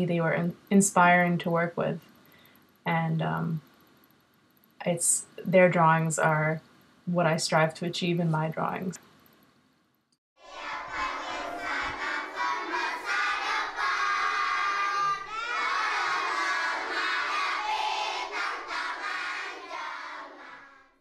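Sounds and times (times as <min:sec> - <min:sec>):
children shouting and cheering: 0:10.4 - 0:21.0.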